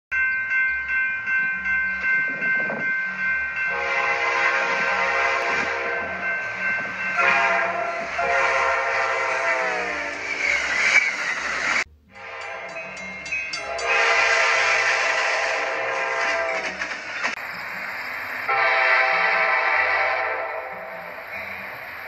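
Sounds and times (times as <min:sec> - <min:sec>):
diesel locomotive whine and rumble: 0:00.2 - 0:22.0
locomotive air horn blasts: 0:03.7 - 0:06.2, 0:07.2 - 0:10.2, 0:12.1 - 0:12.8, 0:13.6 - 0:16.8, 0:18.5 - 0:21.2.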